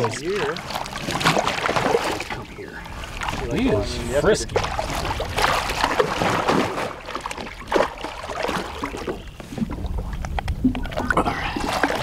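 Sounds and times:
fish splashing in landing net: 0:00.0 - 0:02.4, 0:04.6 - 0:09.2.

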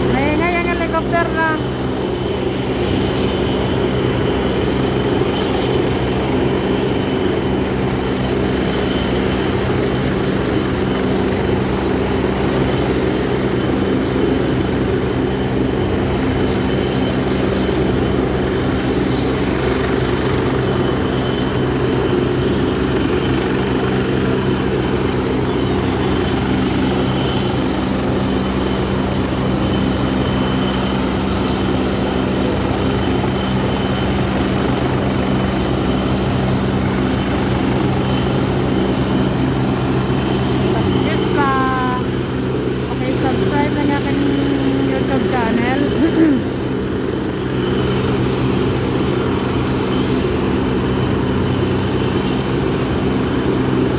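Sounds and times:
helicopter rotor and engine drone: 0:00.0 - 0:53.9.

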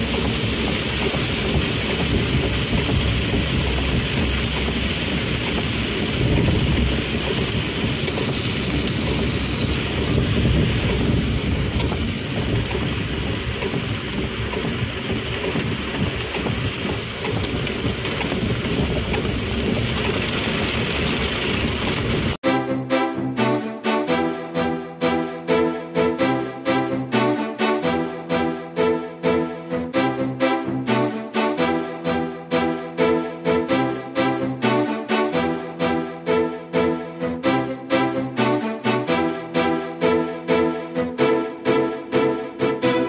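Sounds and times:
heavy rain on car roof: 0:00.0 - 0:22.4
low rumble of driving car: 0:00.0 - 0:22.4.

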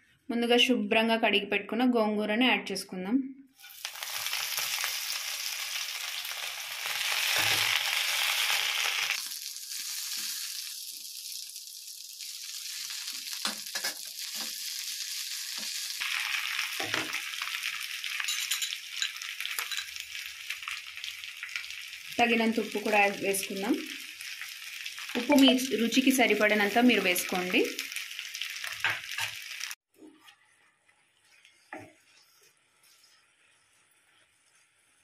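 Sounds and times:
leaves sizzling in hot oil: 0:03.6 - 0:29.8, 0:30.8 - 0:35.0.

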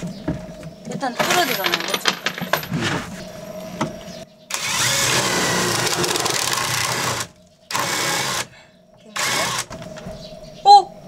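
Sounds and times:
cordless drill boring through wood: 0:04.5 - 0:08.5, 0:09.2 - 0:09.7.

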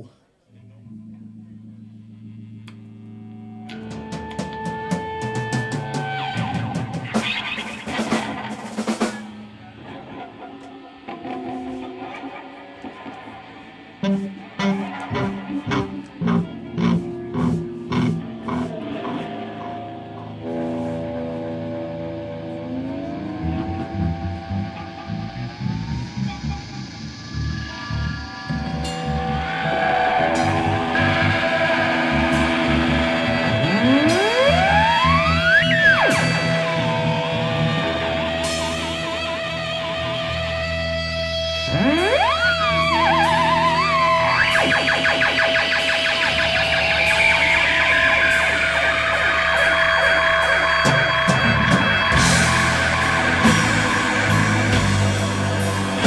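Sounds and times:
instrumental heavy rock band: 0:03.4 - 0:56.0
drum fill with cymbal crashes: 0:46.6 - 0:56.0.

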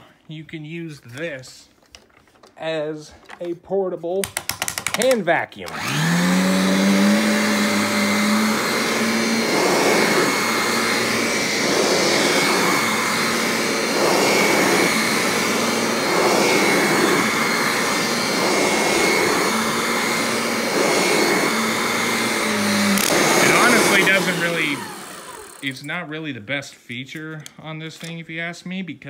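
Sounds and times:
vacuum motor whining: 0:05.6 - 0:25.9.

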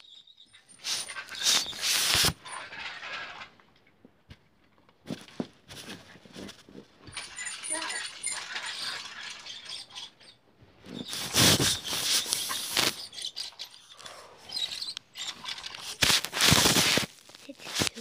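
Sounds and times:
toy trucks pushed on carpet: 0:00.7 - 0:03.6, 0:05.0 - 0:18.0
camera handling rustling: 0:15.4 - 0:18.0.

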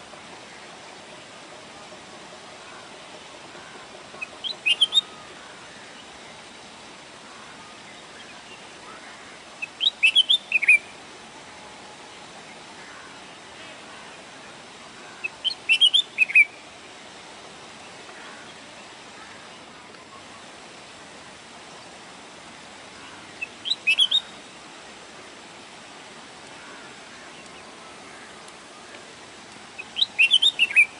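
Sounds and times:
background hiss: 0:00.0 - 0:30.9
bird whistled song: 0:04.2 - 0:05.2, 0:09.6 - 0:10.9, 0:15.4 - 0:16.6, 0:23.4 - 0:24.3, 0:29.8 - 0:30.9.

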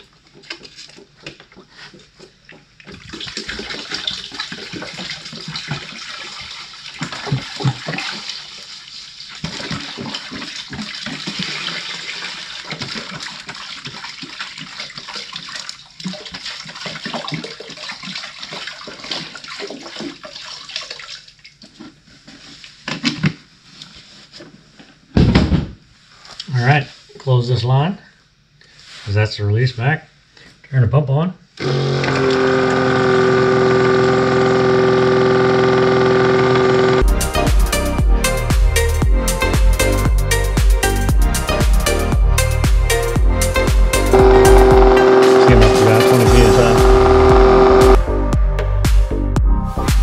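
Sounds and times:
liquid pouring into bucket: 0:00.0 - 0:22.0.

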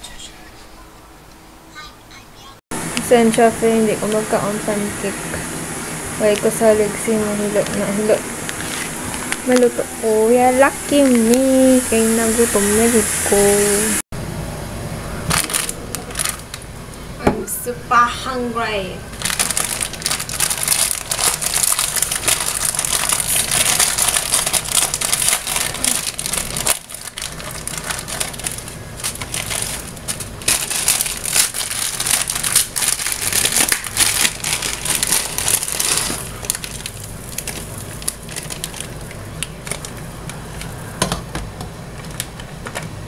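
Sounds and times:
dense continuous crackling: 0:19.1 - 0:40.8.

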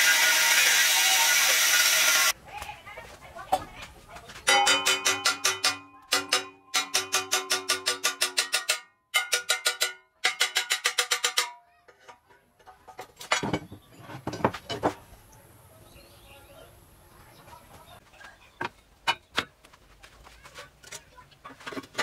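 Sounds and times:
hammer striking steel bar: 0:04.5 - 0:11.6.

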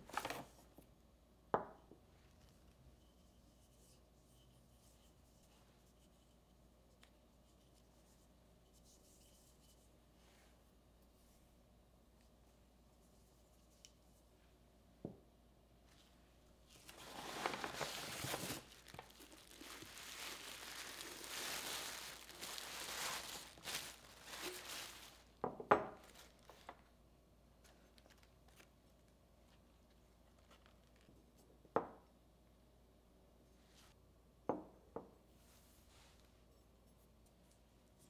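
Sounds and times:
paper crinkling and rustling: 0:00.0 - 0:00.8, 0:16.7 - 0:25.4, 0:26.0 - 0:26.9, 0:27.6 - 0:31.2.

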